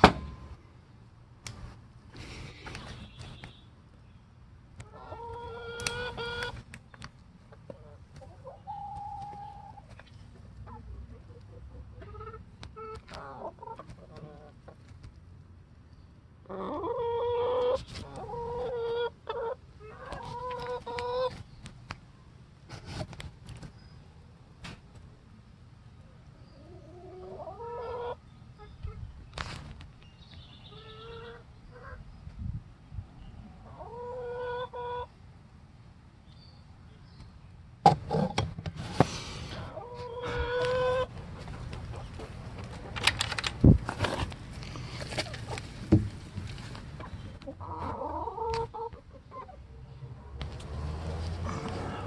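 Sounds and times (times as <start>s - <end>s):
chickens squawking: 4.8s - 6.6s, 7.6s - 14.7s, 16.4s - 21.4s, 26.5s - 29.1s, 30.6s - 32.1s, 33.6s - 35.2s, 39.5s - 43.0s, 47.0s - 50.2s
chicken squawking: 4.9s - 6.6s, 16.5s - 21.3s, 26.6s - 28.2s, 30.7s - 32.0s, 33.6s - 35.1s, 39.6s - 41.1s.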